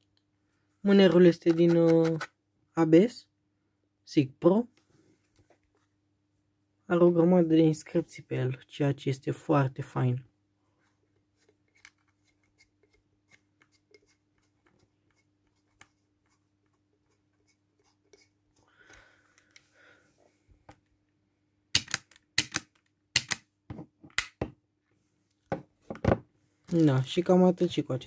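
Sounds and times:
pistol handling clicks: 0:21.8 - 0:23.4.

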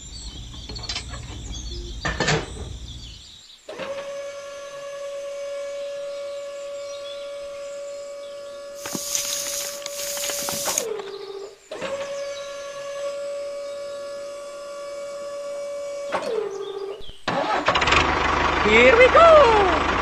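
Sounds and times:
small electric motor whining: 0:03.7 - 0:17.0
loud hiss: 0:08.8 - 0:10.9.

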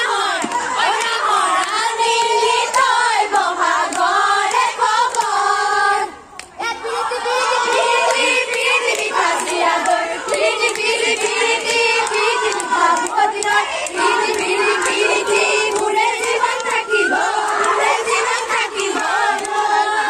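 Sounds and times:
women singing together: 0:00.0 - 0:20.0
sharp hand claps: 0:08.0 - 0:16.8.

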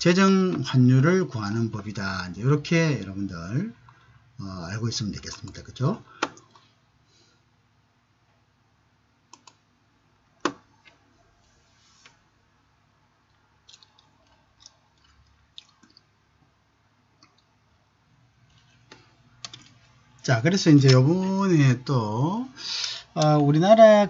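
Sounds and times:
faint room hum: 0:00.0 - 0:24.0
mouse and keyboard clicks: 0:09.3 - 0:09.6.

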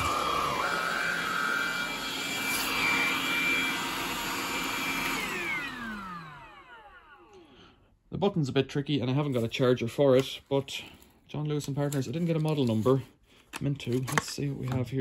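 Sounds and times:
vacuum motor spinning down: 0:00.0 - 0:07.5
vacuum cleaner motor whine: 0:00.0 - 0:07.6.

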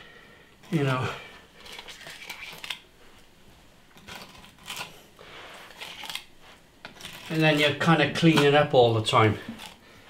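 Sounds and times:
scraping cement: 0:04.0 - 0:06.2, 0:06.9 - 0:09.8.

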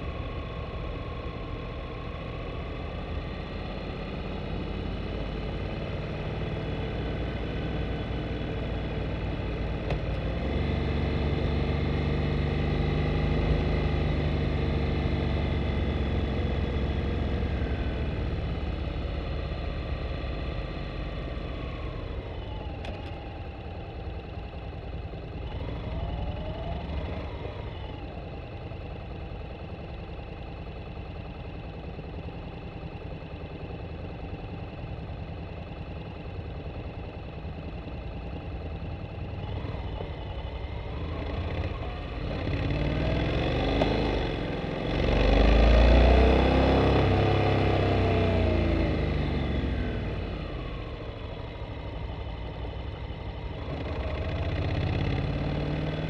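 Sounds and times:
motorcycle engine running at low revs: 0:00.0 - 0:56.0.

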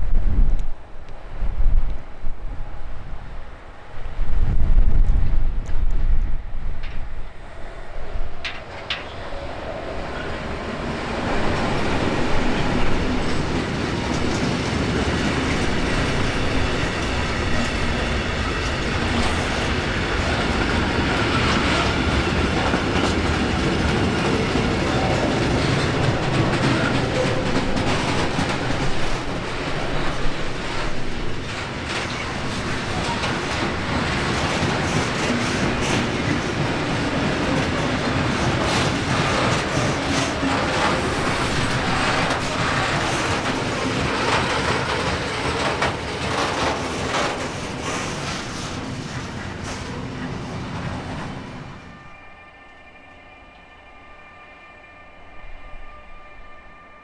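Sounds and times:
train wheels rumbling: 0:00.0 - 0:54.3
clickety-clack over rail joints: 0:06.8 - 0:07.1, 0:08.4 - 0:09.4, 0:10.1 - 0:51.4.

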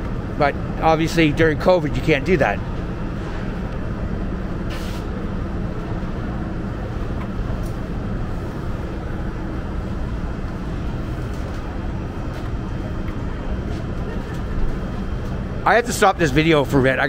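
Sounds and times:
indoor market hall rumble: 0:00.0 - 0:17.0
short hiss: 0:04.7 - 0:05.1.

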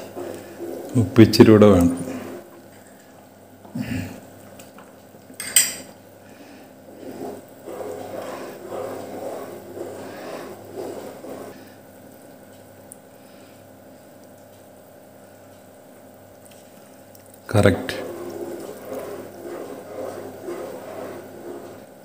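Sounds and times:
spatula stirring soup in a pan: 0:00.0 - 0:03.3, 0:05.8 - 0:12.2, 0:16.6 - 0:22.0.

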